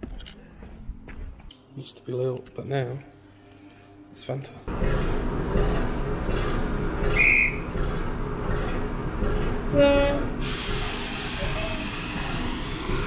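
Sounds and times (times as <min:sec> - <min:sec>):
train rumbling: 0:04.7 - 0:13.0
short shrill whistle: 0:07.1 - 0:07.6
locomotive whistle blast: 0:07.1 - 0:07.7
steam hiss: 0:10.4 - 0:13.0.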